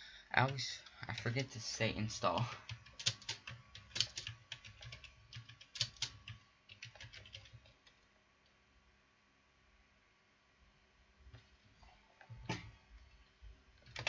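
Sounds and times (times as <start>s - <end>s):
typing on computer keyboard: 2.4s - 8.0s.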